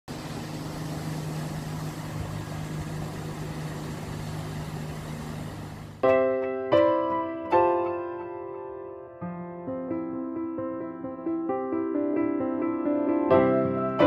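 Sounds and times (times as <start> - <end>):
boat engine humming: 0.0 - 6.1
hiss of water and air: 0.1 - 6.0
piano chords: 0.1 - 14.0.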